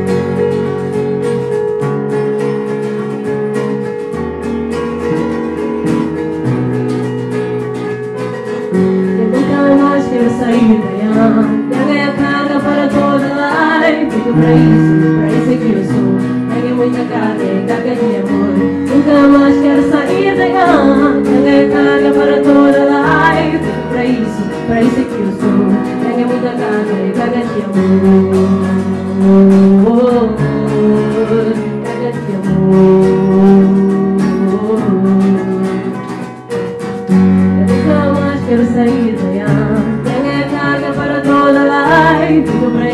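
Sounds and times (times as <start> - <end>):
acoustic guitar: 0.0 - 42.9
keyboard chords: 0.0 - 42.9
women singing: 8.7 - 36.0, 37.5 - 42.9.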